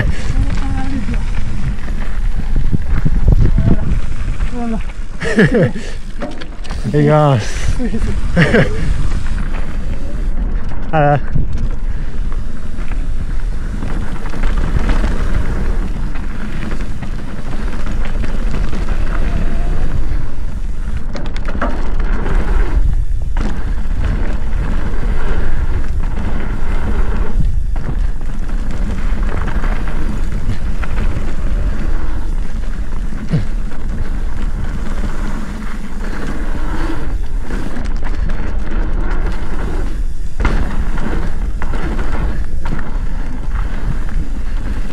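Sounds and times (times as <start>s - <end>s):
bike rattling over bumps: 0.0s - 44.9s
tyre noise on dirt: 0.0s - 44.9s
wind buffeting microphone: 0.0s - 44.9s.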